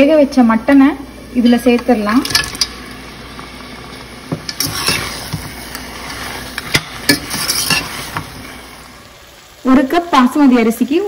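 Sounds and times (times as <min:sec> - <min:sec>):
light sizzle: 0:00.0 - 0:11.0
spatula scraping a pot: 0:04.5 - 0:08.6.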